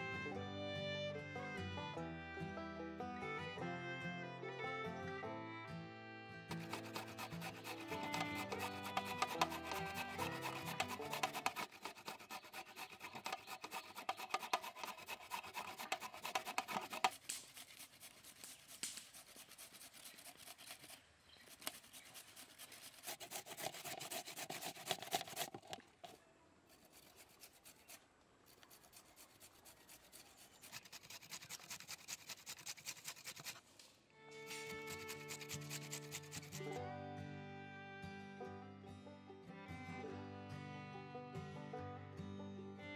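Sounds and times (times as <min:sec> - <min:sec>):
carrots grated on metal grater: 0:06.5 - 0:20.9, 0:21.5 - 0:25.5, 0:34.7 - 0:36.6.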